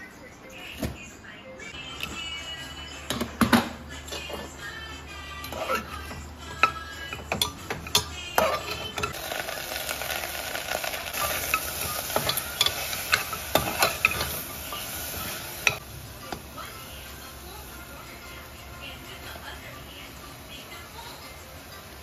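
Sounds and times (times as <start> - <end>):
metal spoon scraping a pot: 5.4 - 10.2, 11.1 - 15.8
pork sizzling in a pot: 5.6 - 22.0.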